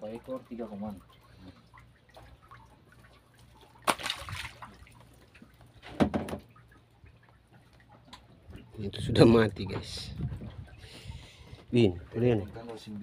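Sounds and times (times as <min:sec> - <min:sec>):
water splashing: 0:00.0 - 0:08.8.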